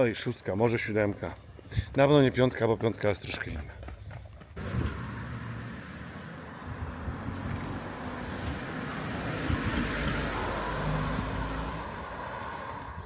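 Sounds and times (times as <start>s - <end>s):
car driving past: 4.6s - 13.0s.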